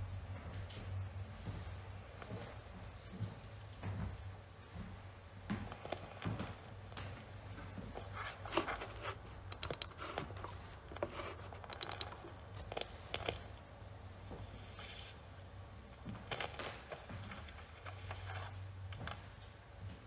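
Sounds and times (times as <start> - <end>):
small clicks knocks and rustles: 0.2 - 13.7
rattling runs of clicks: 9.4 - 13.5.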